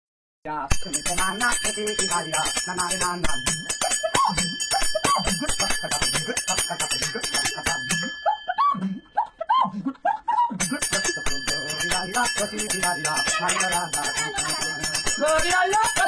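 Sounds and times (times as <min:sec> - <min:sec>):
metal percussion clicking: 0:00.7 - 0:08.1, 0:10.6 - 0:16.0
man singing: 0:00.8 - 0:03.6, 0:04.3 - 0:08.0, 0:10.6 - 0:16.0.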